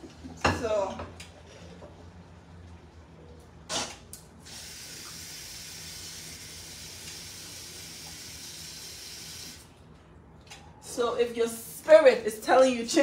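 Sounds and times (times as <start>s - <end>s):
kitchen tap running: 4.4s - 9.7s.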